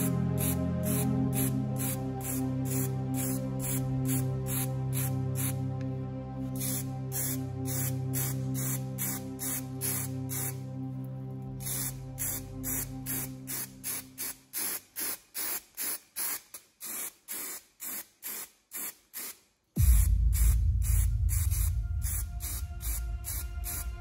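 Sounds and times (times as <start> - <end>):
spray paint hissing: 0.0 - 5.6, 6.5 - 10.6, 11.6 - 24.0
heavy bass music: 0.0 - 13.7, 19.8 - 24.0.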